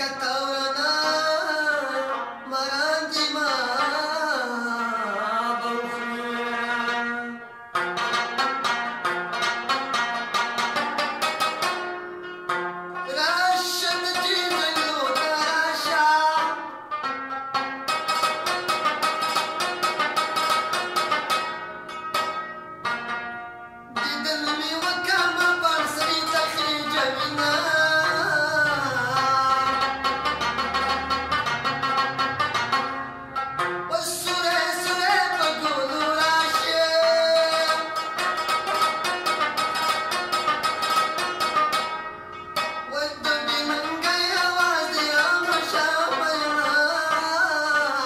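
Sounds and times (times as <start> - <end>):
man singing: 0.0 - 7.5, 13.0 - 16.8, 24.0 - 29.9, 33.9 - 38.2, 42.9 - 48.0
plucked lute notes: 0.0 - 48.0
rubab strumming: 0.0 - 48.0.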